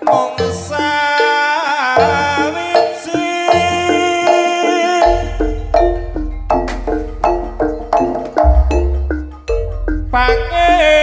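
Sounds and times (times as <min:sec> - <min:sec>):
metallophones ringing notes: 0:00.0 - 0:11.0
steady deep bass: 0:05.1 - 0:10.9.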